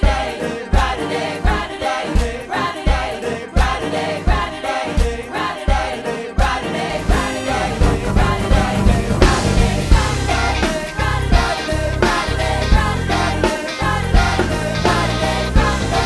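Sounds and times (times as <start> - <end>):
gospel choir singing: 0.0 - 16.0
live band playing: 6.9 - 16.0
kick drum beat: 7.1 - 10.2.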